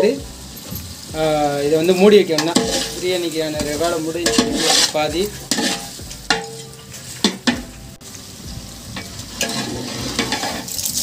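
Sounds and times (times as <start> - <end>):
food sizzling: 0.0 - 11.0
metal ladle scraping a pot: 1.8 - 7.8, 9.0 - 11.0.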